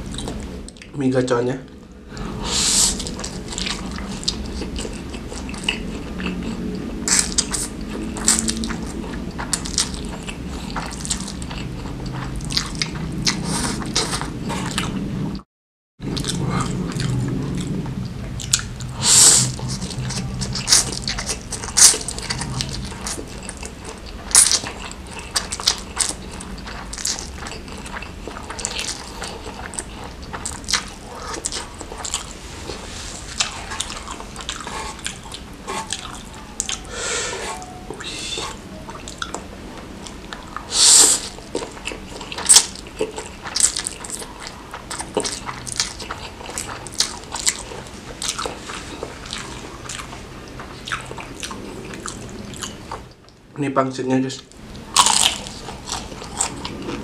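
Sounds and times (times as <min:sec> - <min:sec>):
wet chewing: 0:00.0 - 0:00.9, 0:01.7 - 0:15.4, 0:16.1 - 0:53.4, 0:54.4 - 0:57.0
sharp mouth noises: 0:28.6 - 0:39.5.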